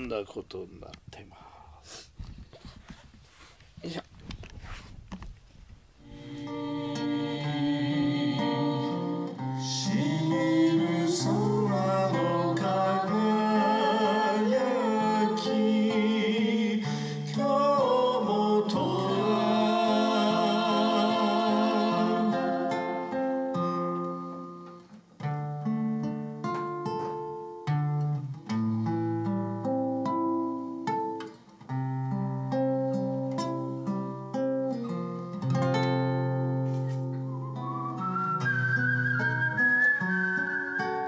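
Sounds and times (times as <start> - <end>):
acoustic guitar accompaniment: 0.0 - 41.0
rustling: 2.0 - 6.0
man and woman singing: 6.0 - 23.2.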